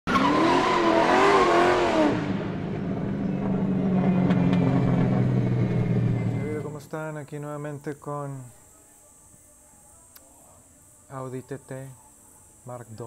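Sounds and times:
car engine revving: 0:00.1 - 0:06.7.

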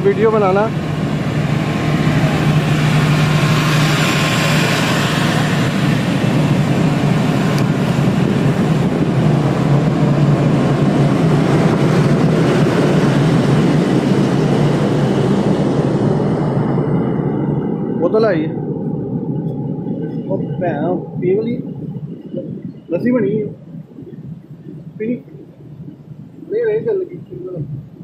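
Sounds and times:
diesel generator humming: 0:00.0 - 0:28.0.

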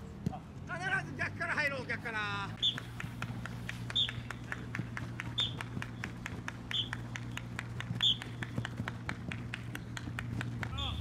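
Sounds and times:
running footsteps on grass: 0:02.6 - 0:11.0.

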